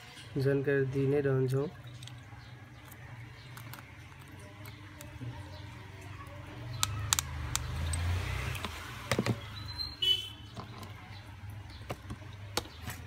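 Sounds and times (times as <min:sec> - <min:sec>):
screwdriver clicks and taps: 0:06.8 - 0:07.7.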